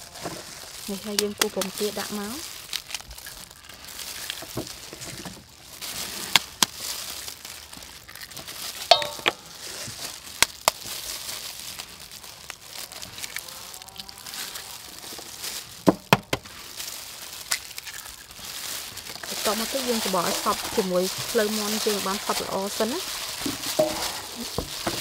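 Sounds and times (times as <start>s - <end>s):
plastic glove crinkling: 0.0s - 25.0s
eggshell tapping on steel bowl: 8.9s - 9.4s.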